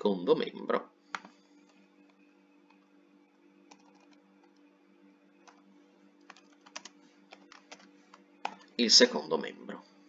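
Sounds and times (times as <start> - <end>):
low steady hum: 0.0 - 10.0
keyboard and mouse clicks: 1.2 - 1.8, 3.7 - 4.6, 6.2 - 8.7.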